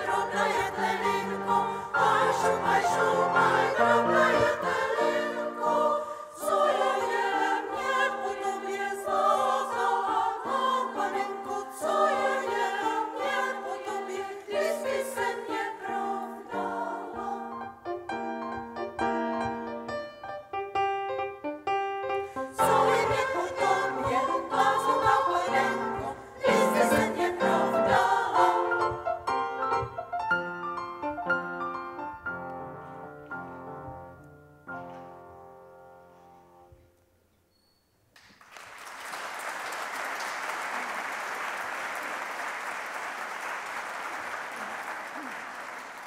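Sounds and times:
women's choir singing: 0.0s - 17.8s, 22.4s - 29.9s
piano accompaniment: 0.0s - 36.8s
audience applauding: 38.2s - 46.0s.

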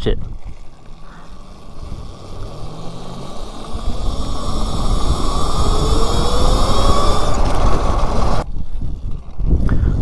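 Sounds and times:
wind noise on microphone: 0.0s - 10.0s
electric motor whining: 0.3s - 10.0s.

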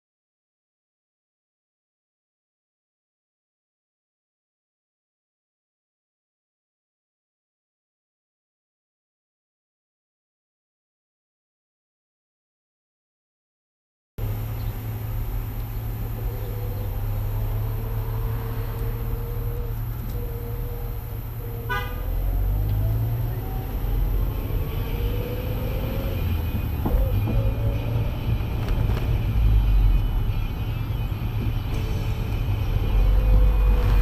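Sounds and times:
car engine accelerating: 14.2s - 34.0s
road rumble: 14.2s - 34.0s
car horn toot: 21.6s - 22.4s, 24.4s - 32.3s.

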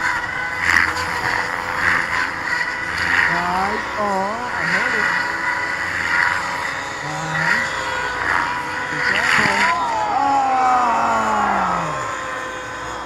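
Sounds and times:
model helicopter rotor whine: 0.0s - 13.0s
person's voice: 3.2s - 5.2s, 7.0s - 8.0s, 8.9s - 12.2s.

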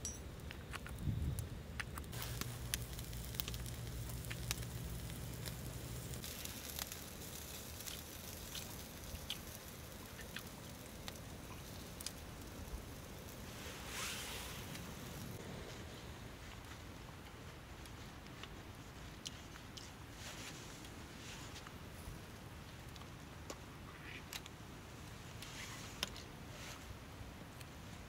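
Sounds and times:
small clicks and crackles: 0.1s - 15.4s, 16.4s - 26.9s
low hum: 1.0s - 6.3s.

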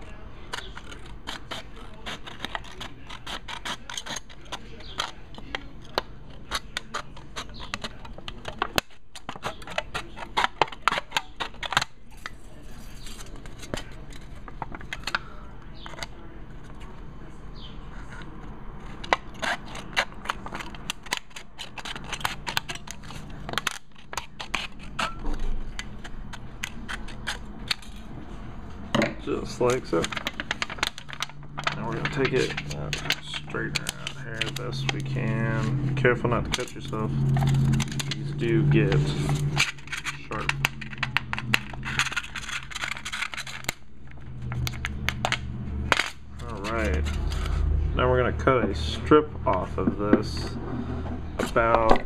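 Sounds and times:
thin metal crinkling: 6.6s - 15.9s, 29.2s - 47.7s.

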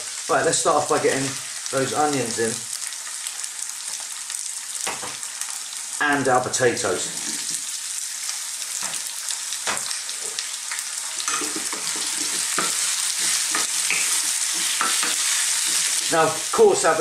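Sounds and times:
vegetables sizzling in hot oil: 0.0s - 17.0s
wooden spoon stirring in a wok: 11.2s - 16.6s.

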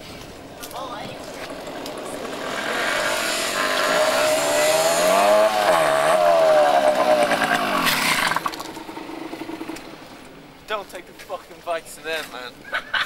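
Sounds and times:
dirt bike engines running: 0.0s - 12.6s.

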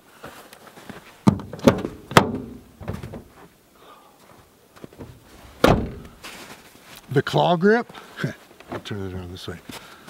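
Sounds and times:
soft knocks: 1.3s - 3.4s
car door latch clunks: 5.6s - 6.2s.

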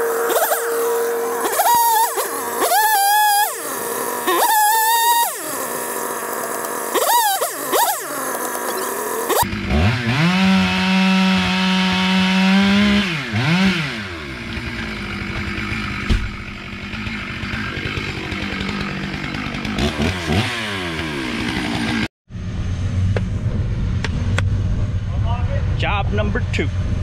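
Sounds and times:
chainsaw revving and cutting: 0.0s - 22.1s
low vehicle engine: 12.8s - 21.4s, 22.3s - 27.0s.

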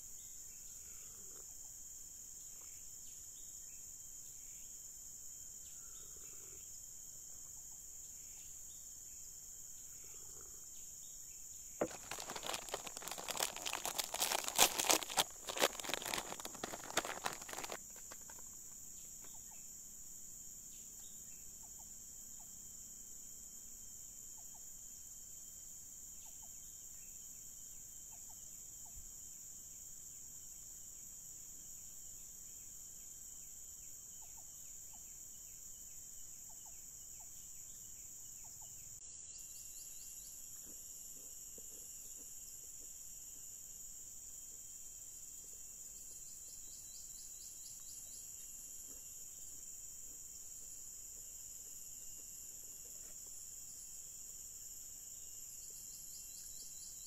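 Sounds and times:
high-pitched insect chorus: 0.0s - 57.0s
loud crackling rustle: 11.8s - 18.5s.

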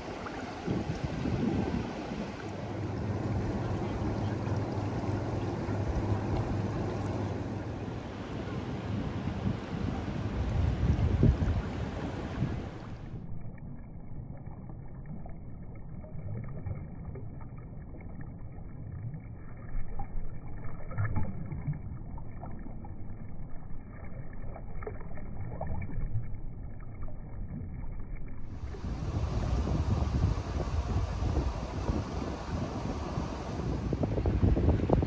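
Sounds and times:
wind on microphone: 0.0s - 4.6s, 8.5s - 13.2s, 28.5s - 35.0s
small waves lapping on sand: 0.0s - 13.1s, 28.6s - 35.0s
distant surf: 0.0s - 13.2s, 28.5s - 35.0s.

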